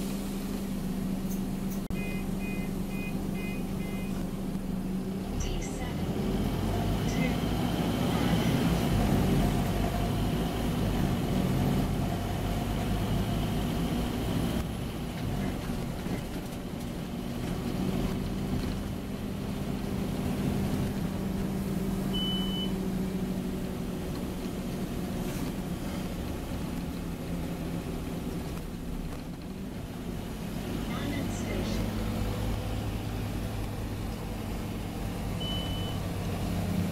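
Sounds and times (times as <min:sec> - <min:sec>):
bus diesel engine running: 0:00.0 - 0:36.9
short high beep: 0:01.9 - 0:04.2, 0:22.2 - 0:22.8, 0:35.4 - 0:36.0.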